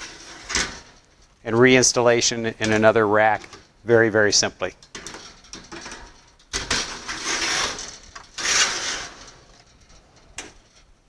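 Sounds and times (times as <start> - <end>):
equipment scraping along metal rails: 0.0 - 11.0.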